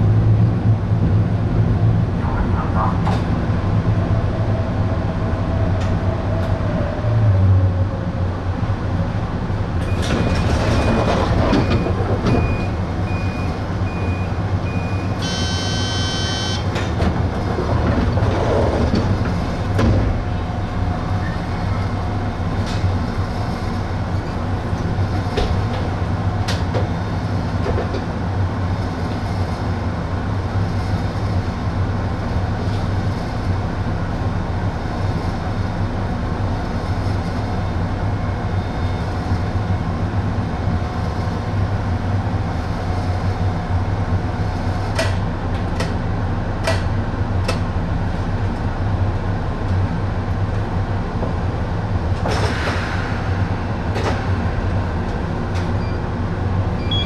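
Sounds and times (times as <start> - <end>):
short evenly spaced beeps: 13.1 - 16.6
brief buzzer: 15.2 - 16.6.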